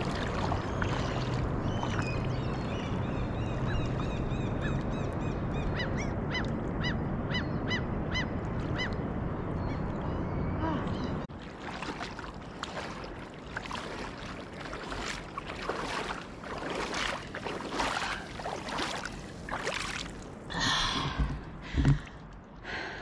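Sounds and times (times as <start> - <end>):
water splashing: 0.0 - 4.8, 11.3 - 22.4.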